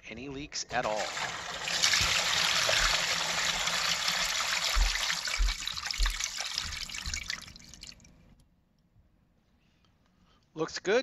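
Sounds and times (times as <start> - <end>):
wastewater rushing through drain pipe: 0.8 - 8.2
low thumps in pipe: 4.7 - 7.5.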